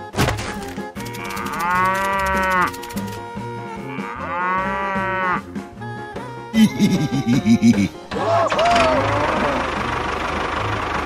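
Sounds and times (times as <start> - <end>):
background music: 0.0 - 11.0
cow mooing: 1.2 - 2.8, 3.7 - 5.5.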